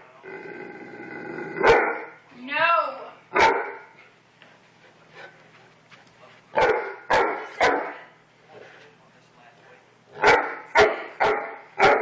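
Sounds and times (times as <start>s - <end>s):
large dog barking: 1.6s - 2.2s, 3.3s - 4.0s, 6.5s - 8.1s, 10.1s - 12.0s.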